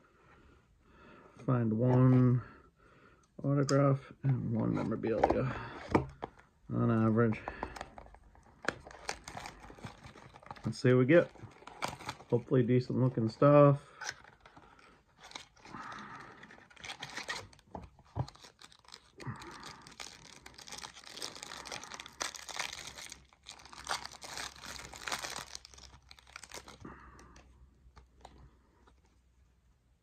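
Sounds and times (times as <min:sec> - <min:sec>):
plastic wrapping tearing and crinkling: 0:08.7 - 0:12.4, 0:14.0 - 0:27.0.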